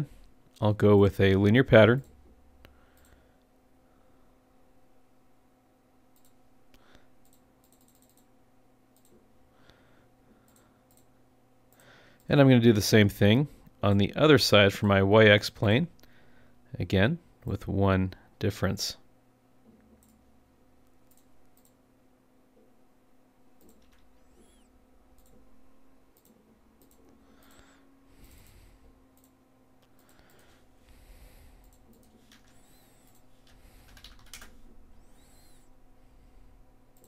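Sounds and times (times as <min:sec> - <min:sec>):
low steady hum: 0:00.0 - 0:37.0
computer mouse clicks: 0:02.9 - 0:03.2, 0:06.1 - 0:08.3, 0:08.9 - 0:09.3, 0:10.4 - 0:11.1, 0:19.6 - 0:20.2, 0:20.8 - 0:21.8, 0:23.6 - 0:25.5, 0:26.1 - 0:35.8
keyboard keystrokes: 0:31.6 - 0:35.6.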